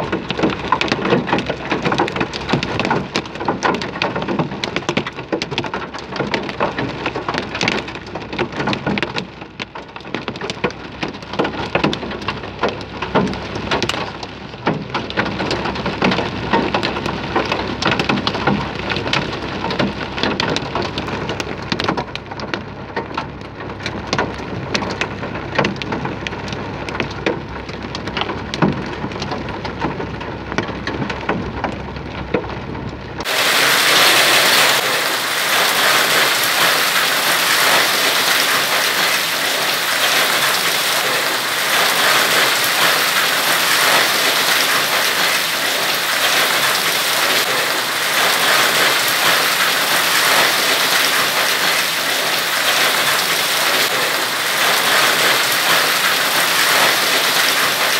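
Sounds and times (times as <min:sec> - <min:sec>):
raindrops pattering on windscreen: 0:00.0 - 0:57.9
heavy downpour hiss: 0:33.2 - 0:57.9.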